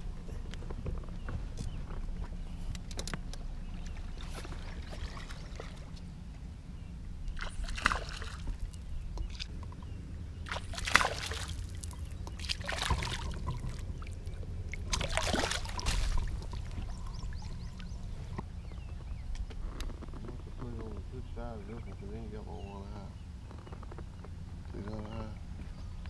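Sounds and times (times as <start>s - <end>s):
steady low rumble: 0.0s - 26.0s
water sloshing and splashing: 2.2s - 6.1s, 7.2s - 18.5s.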